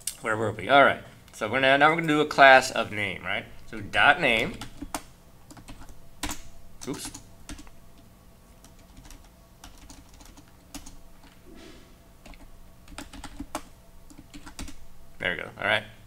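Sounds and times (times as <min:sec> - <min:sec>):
typing on computer keyboard: 0:04.4 - 0:07.7, 0:08.6 - 0:11.0, 0:12.3 - 0:14.8.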